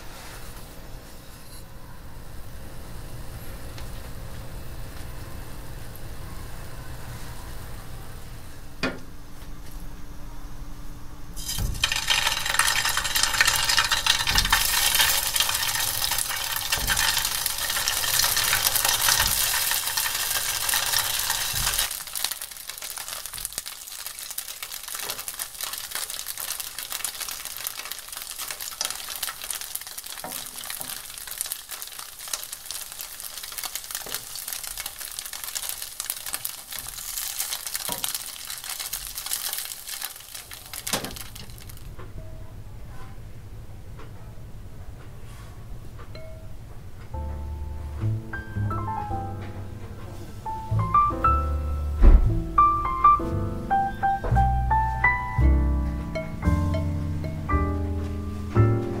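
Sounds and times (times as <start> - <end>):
patties sizzling in oil: 11.4 - 42.0.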